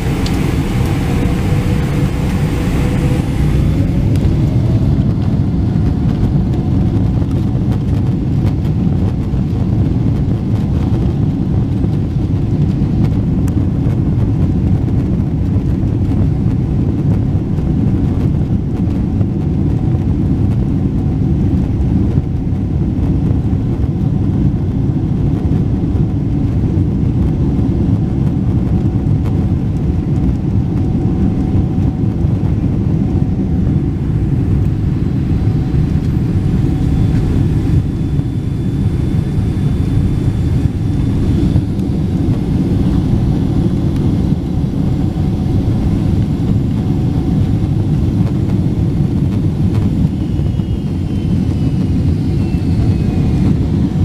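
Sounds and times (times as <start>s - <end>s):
thin high whine: 0.0s - 5.0s, 32.8s - 54.0s
airplane rolling on taxiway: 0.0s - 54.0s
jet engines rumbling: 0.0s - 54.0s.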